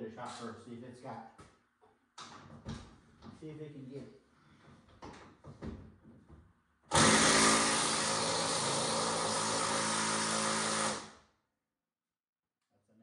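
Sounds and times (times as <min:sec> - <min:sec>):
impact wrench hammering: 0:06.9 - 0:11.2.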